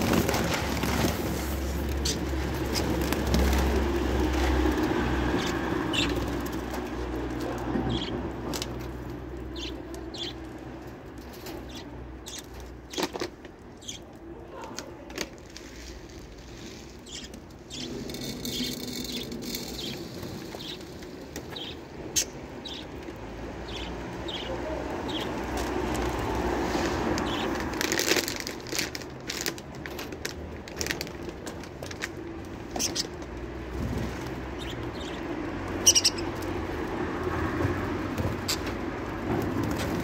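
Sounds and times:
budgerigars chirping: 0:35.8 - 0:36.3.

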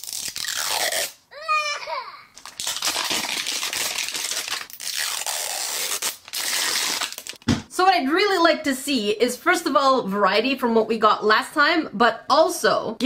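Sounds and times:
plastic wrap crinkling and tearing: 0:00.0 - 0:01.2, 0:02.4 - 0:07.4.

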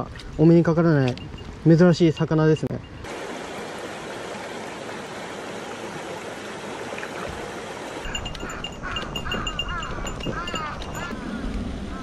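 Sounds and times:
stream flowing over stones: 0:01.7 - 0:11.1.

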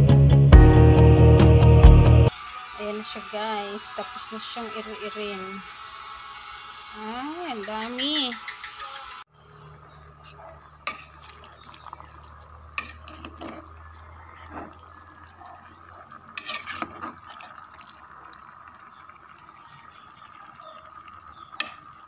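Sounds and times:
metal spoon stirring in pot: 0:10.8 - 0:15.3, 0:16.1 - 0:18.0.

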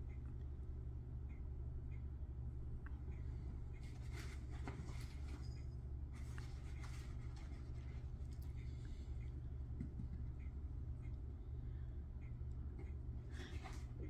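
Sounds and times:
low room hum: 0:00.0 - 0:14.0
soft scratchy rustling: 0:06.1 - 0:08.3.

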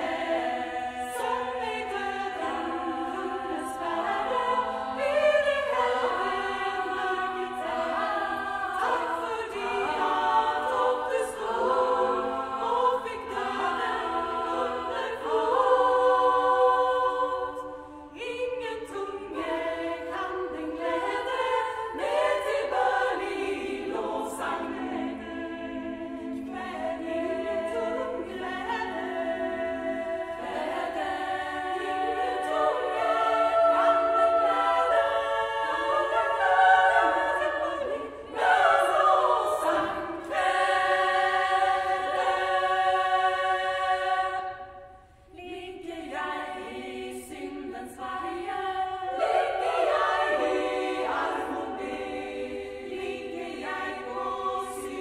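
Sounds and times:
women's choir singing a cappella: 0:00.0 - 0:55.0.

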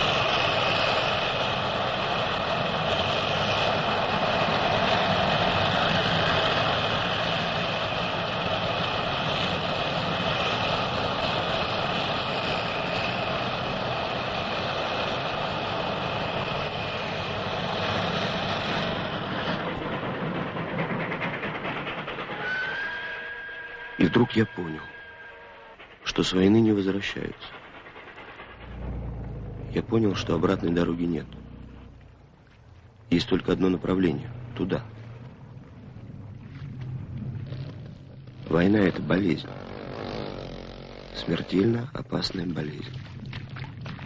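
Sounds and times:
road noise: 0:28.4 - 0:44.0
military vehicle engines droning: 0:28.5 - 0:42.8.

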